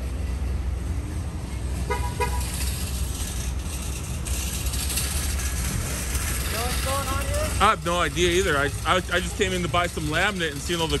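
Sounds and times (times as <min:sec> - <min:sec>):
steady low rumble: 0:00.0 - 0:11.0
car horn toots: 0:01.9 - 0:02.5.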